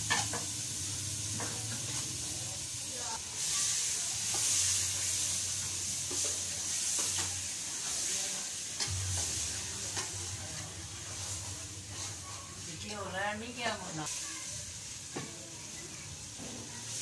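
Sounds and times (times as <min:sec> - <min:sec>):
meat sizzling in a pot: 0:00.0 - 0:17.0
metal ladle scraping a pot: 0:10.0 - 0:13.0.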